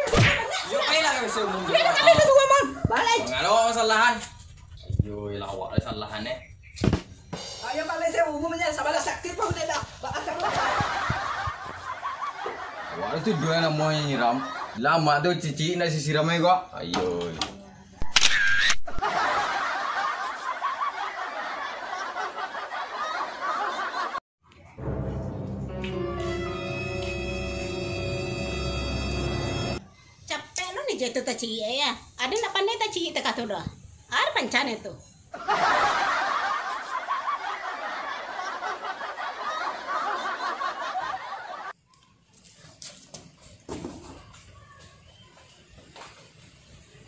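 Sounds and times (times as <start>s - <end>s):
group of people laughing: 0.0s - 3.2s, 9.8s - 14.8s, 18.9s - 24.2s, 35.3s - 41.8s.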